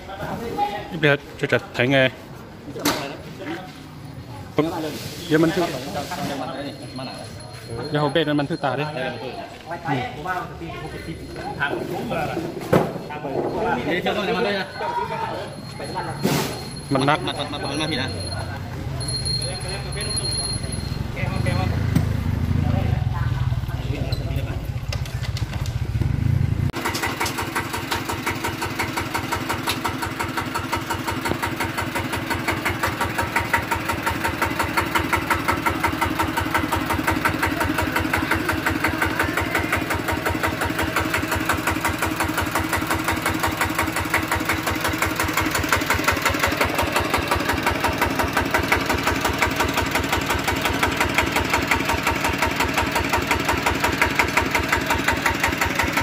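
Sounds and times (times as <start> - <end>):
diesel engine chugging at idle: 19.2 - 56.0.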